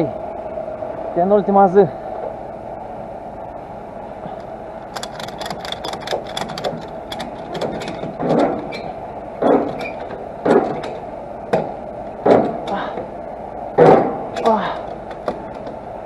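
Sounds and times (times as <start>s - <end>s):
ratchet strap clicking: 4.9s - 8.2s.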